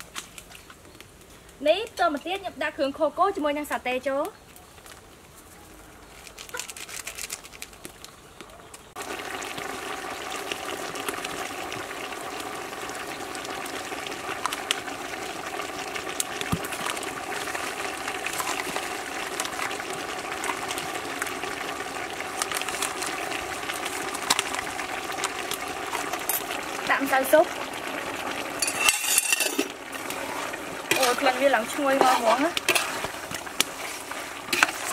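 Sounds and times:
wood fire crackling: 0:04.2 - 0:34.9
meat sizzling in a pot: 0:09.0 - 0:34.9.

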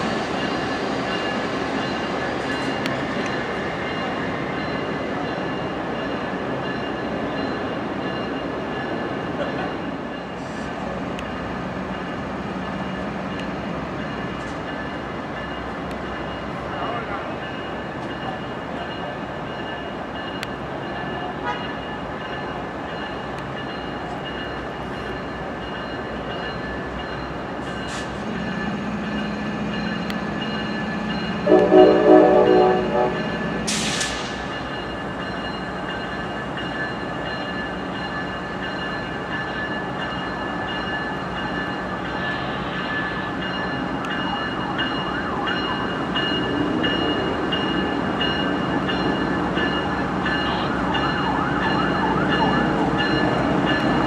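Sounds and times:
locomotive horn chord: 0:31.4 - 0:33.5.

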